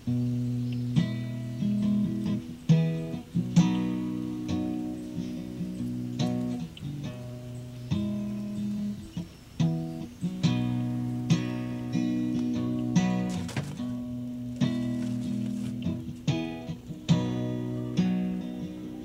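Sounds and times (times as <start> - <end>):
acoustic guitar music: 0.0 - 19.0.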